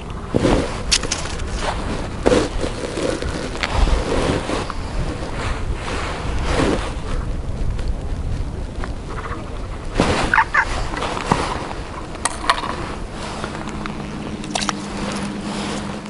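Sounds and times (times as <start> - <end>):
low steady hum: 0.0 - 16.0
wind buffeting microphone: 0.0 - 16.0
warbling call: 9.1 - 11.0.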